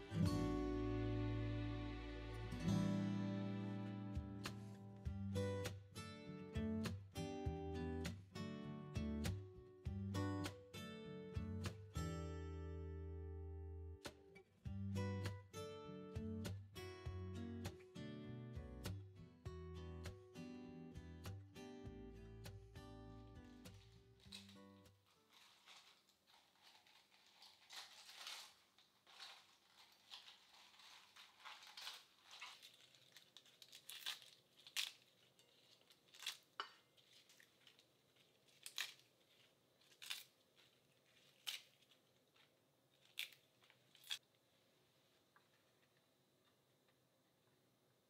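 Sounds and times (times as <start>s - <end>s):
lettuce leaves tearing: 23.6s - 44.2s.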